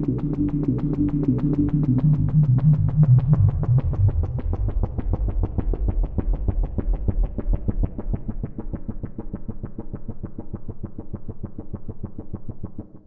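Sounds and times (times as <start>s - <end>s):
deep synth bass: 0.0s - 9.0s.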